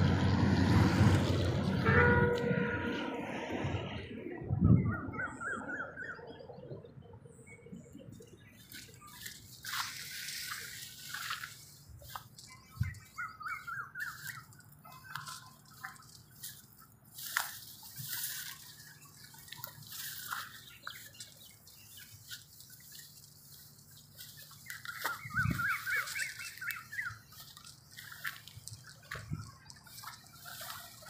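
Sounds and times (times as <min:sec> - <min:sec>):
small birds chirping: 0:06.1 - 0:31.0
crop leaves rustling underfoot: 0:08.4 - 0:31.0.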